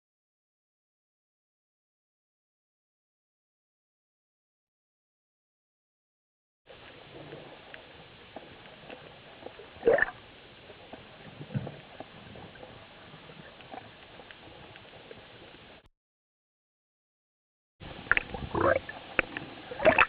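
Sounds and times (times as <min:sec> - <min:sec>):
underwater gurgling and bubbling: 0:06.8 - 0:15.8, 0:17.8 - 0:20.0.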